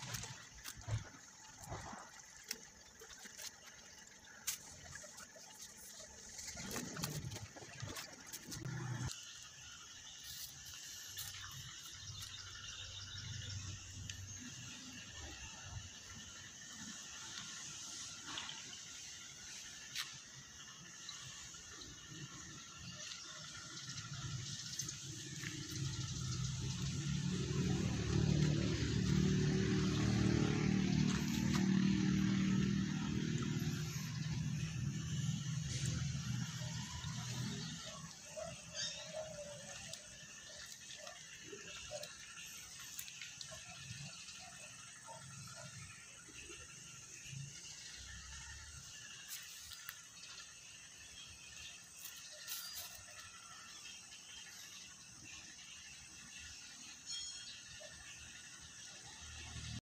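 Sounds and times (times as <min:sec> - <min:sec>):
insects chirring: 0:00.0 - 0:58.7
low engine hum: 0:24.9 - 0:38.5.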